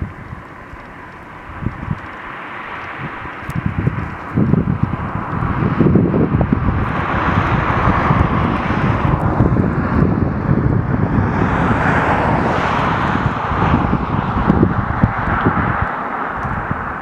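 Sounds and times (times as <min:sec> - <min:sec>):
steady rushing noise: 0:00.0 - 0:17.0
wind buffeting microphone: 0:00.0 - 0:17.0.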